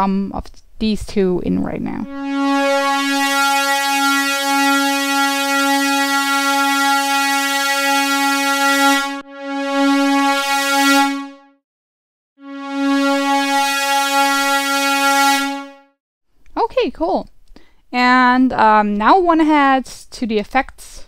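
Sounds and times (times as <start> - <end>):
bright synthesizer tone: 1.9 - 11.6, 12.4 - 15.9.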